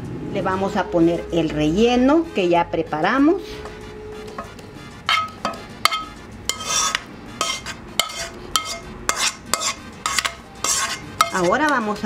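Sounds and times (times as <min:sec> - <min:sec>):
metal spoon scraping a frying pan: 0:04.2 - 0:12.0.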